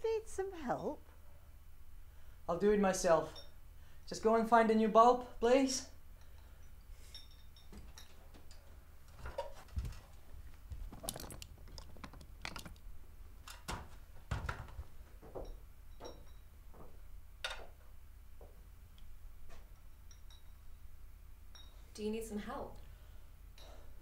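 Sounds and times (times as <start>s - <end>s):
faint high ringing tones: 3.2s - 4.0s, 5.9s - 8.2s, 15.3s - 16.6s, 19.8s - 22.0s.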